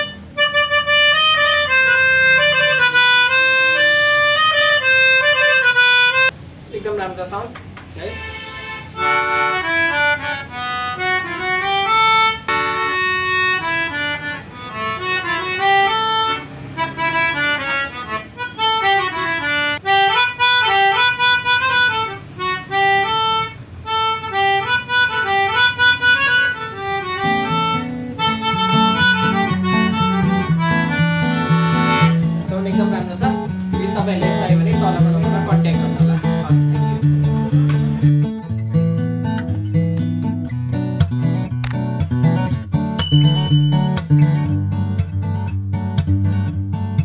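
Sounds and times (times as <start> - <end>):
melodica melody: 0.0 - 6.4, 8.0 - 44.8
lower repeating accompaniment: 9.0 - 46.3.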